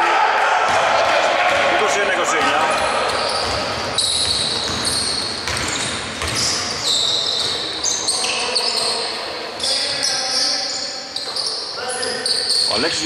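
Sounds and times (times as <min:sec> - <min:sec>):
basketball bouncing: 0:02.4 - 0:07.8
sneaker squeaks: 0:02.4 - 0:13.0.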